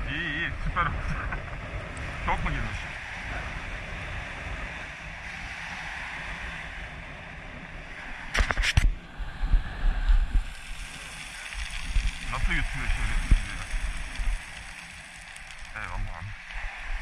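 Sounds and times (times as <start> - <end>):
waves washing over pebbles: 7.8 - 17.0
low rumbling bumps: 11.6 - 17.0.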